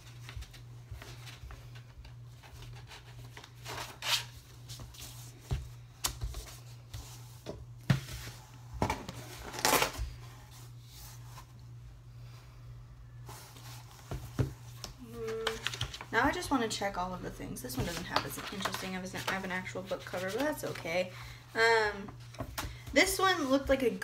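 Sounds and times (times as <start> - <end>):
steady low hum: 0.0 - 17.7
book pages turning: 13.3 - 16.1
paper rustling and crinkling: 15.1 - 16.1, 17.8 - 20.9.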